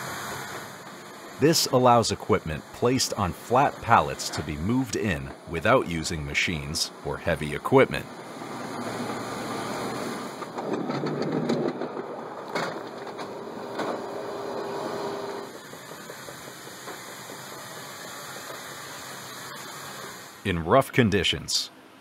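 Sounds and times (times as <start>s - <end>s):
mechanical background noise: 0.1s - 22.0s
pallet rumbling over rollers: 8.1s - 17.6s.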